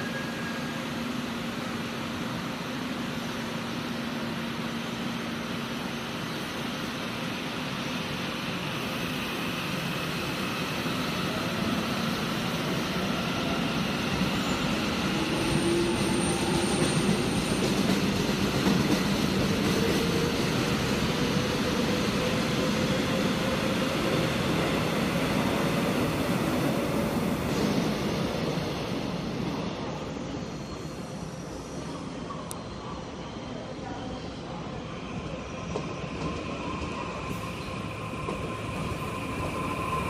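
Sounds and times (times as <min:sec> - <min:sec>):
train wheels rumbling on rails: 0:07.1 - 0:32.3, 0:34.7 - 0:40.0.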